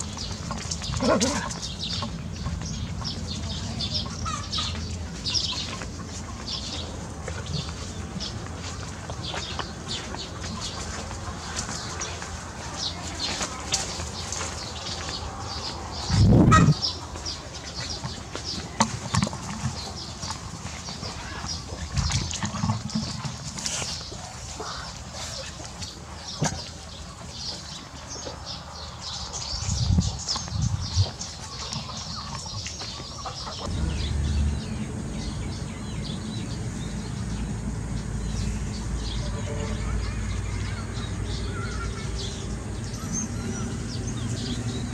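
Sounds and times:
birds chirping: 0:00.0 - 0:44.9
low rumble: 0:33.6 - 0:44.9
microphone handling rumble: 0:33.7 - 0:38.8.

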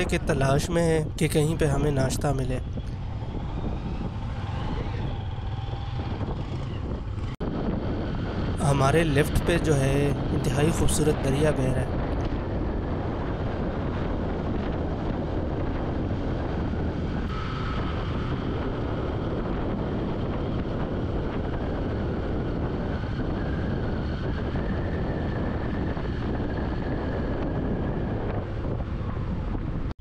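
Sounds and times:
motorcycle engine drone: 0:00.0 - 0:30.0
wind rushing over microphone: 0:00.0 - 0:30.0.

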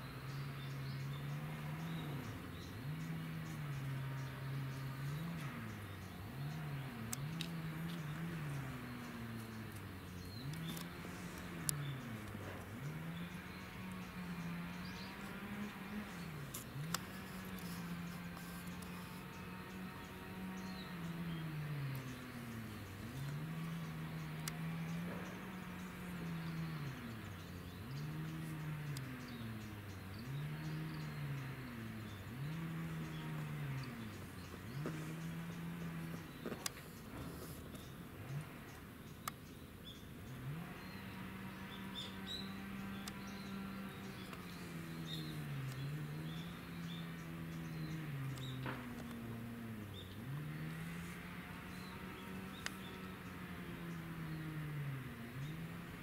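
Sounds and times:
low engine drone sliding in pitch: 0:00.0 - 0:39.0, 0:39.9 - 0:56.0
low mechanical hum: 0:00.0 - 0:56.0
faint clicks: 0:07.1 - 0:08.2, 0:16.4 - 0:19.2, 0:33.0 - 0:39.6.

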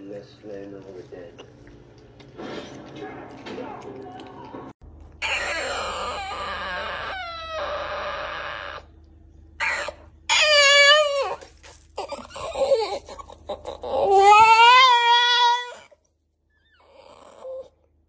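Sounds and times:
dog whining and crying: 0:05.2 - 0:08.9, 0:09.6 - 0:16.0, 0:16.6 - 0:17.8.

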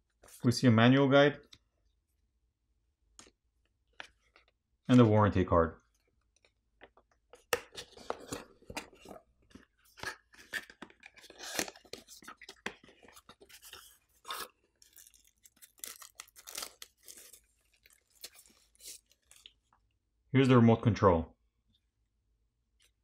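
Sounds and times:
packaging rustling and crinkling: 0:07.7 - 0:19.4.

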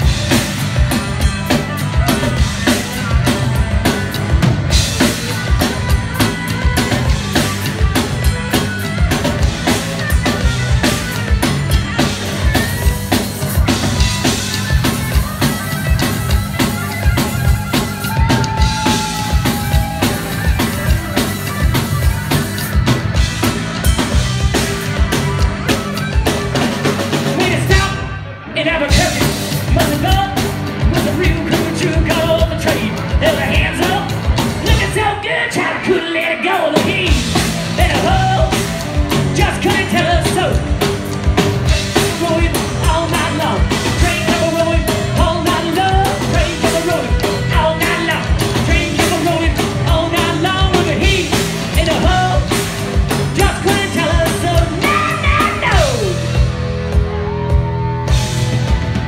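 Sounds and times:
bass guitar: 0:00.0 - 0:59.0
drum kit: 0:00.0 - 0:59.0
electric guitar: 0:00.0 - 0:59.0
singer: 0:27.4 - 0:38.7, 0:42.0 - 0:52.6, 0:53.3 - 0:56.4.

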